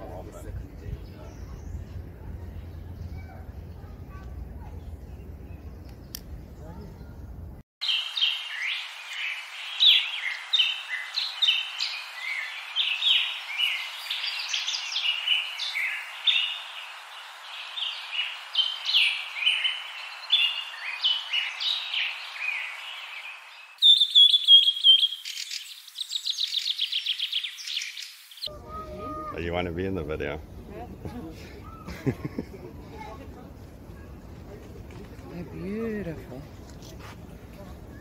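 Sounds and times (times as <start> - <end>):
birds chirping chorus: 0.0 - 34.6
bird whistles and fast trill: 23.8 - 28.1.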